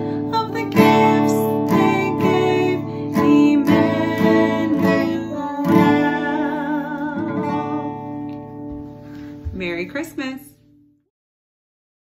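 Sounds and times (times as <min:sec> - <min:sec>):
woman and girl singing: 0:00.0 - 0:08.3
acoustic guitar strumming: 0:00.0 - 0:10.2.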